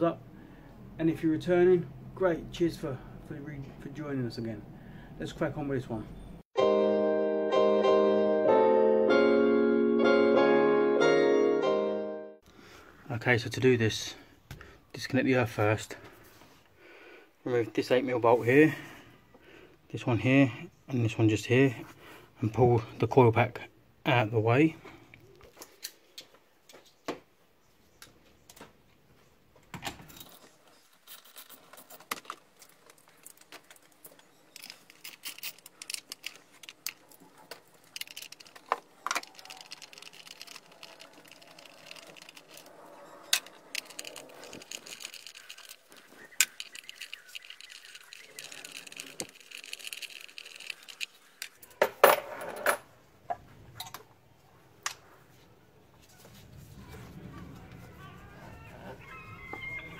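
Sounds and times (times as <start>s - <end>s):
metal tools clinking and rattling: 30.0s - 52.8s
rapid ticking: 34.6s - 51.4s.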